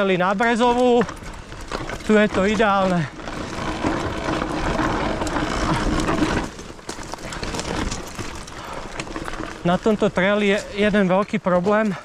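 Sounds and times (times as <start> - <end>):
bike clicks: 0.0 - 12.0
bike crunching over stony trail: 0.0 - 12.0.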